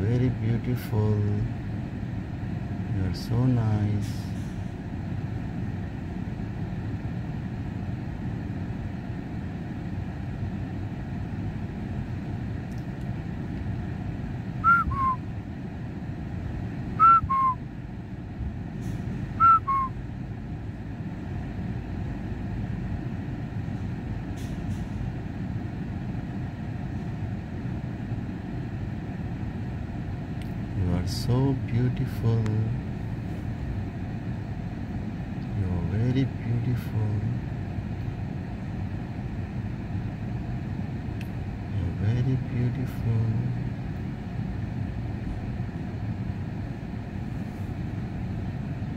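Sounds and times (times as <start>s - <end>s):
low vehicle rumble: 0.0s - 48.9s
person whistling two-note call: 14.6s - 15.2s, 17.0s - 17.6s, 19.4s - 19.9s.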